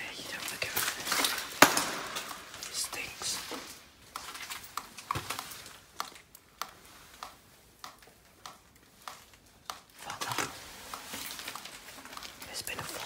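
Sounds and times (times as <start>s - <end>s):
footsteps crunching on rubble: 10.0s - 13.0s.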